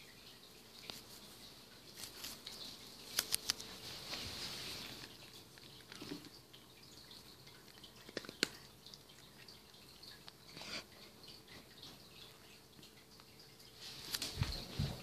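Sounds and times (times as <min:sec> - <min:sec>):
cat crunching dry kibble: 0:01.8 - 0:03.8, 0:04.8 - 0:06.4, 0:07.3 - 0:10.5.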